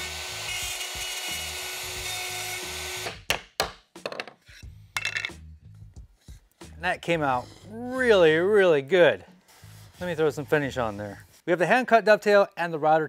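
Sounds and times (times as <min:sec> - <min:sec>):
router cutting wood: 0:00.0 - 0:03.2.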